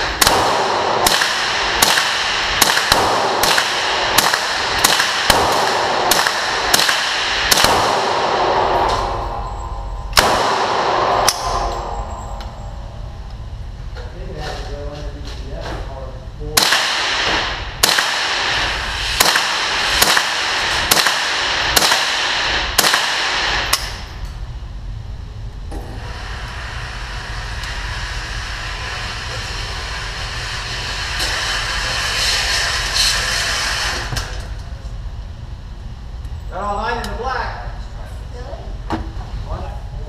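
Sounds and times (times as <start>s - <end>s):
rifle shots echoing: 0.0s - 9.4s, 10.1s - 12.3s, 16.6s - 24.1s.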